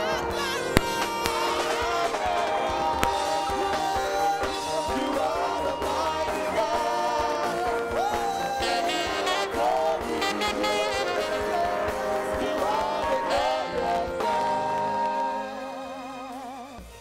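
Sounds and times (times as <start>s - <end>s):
band playing worship music: 0.0s - 17.0s
singers holding a melody: 0.0s - 17.0s.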